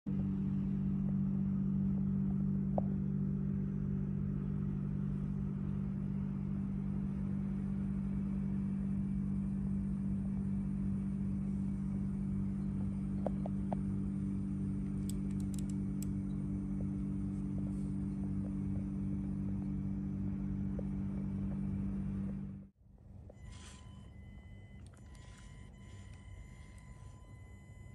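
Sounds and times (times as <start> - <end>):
engine-like hum with pulsing rumble: 0.1 - 27.9
short clicks: 14.8 - 16.4.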